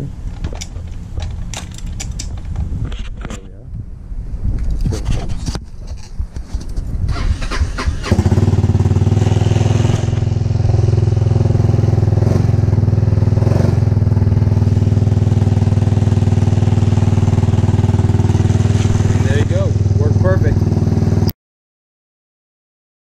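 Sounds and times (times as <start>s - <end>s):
scooter engine starting and idling: 7.0s - 21.3s.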